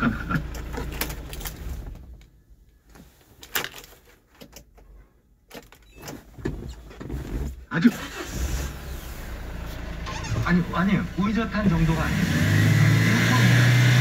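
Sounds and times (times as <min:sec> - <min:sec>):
truck engine idling: 0:08.0 - 0:12.5.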